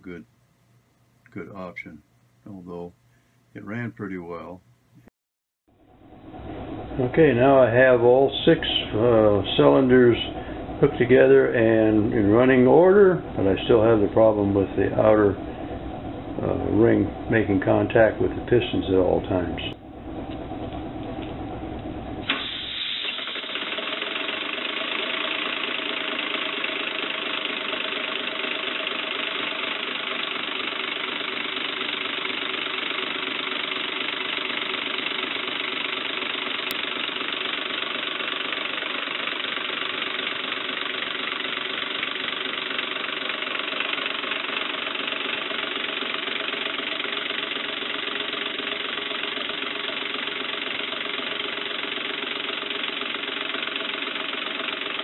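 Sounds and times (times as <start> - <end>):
fast mechanical running noise: 6.0 - 55.0
air rushing from exhaust: 6.1 - 12.0, 14.4 - 18.6, 19.2 - 23.4.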